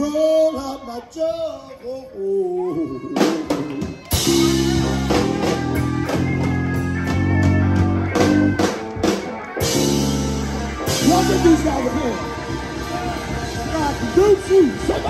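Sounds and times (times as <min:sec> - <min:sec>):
live band playing: 0:02.8 - 0:15.0
strong bass line: 0:03.6 - 0:15.0.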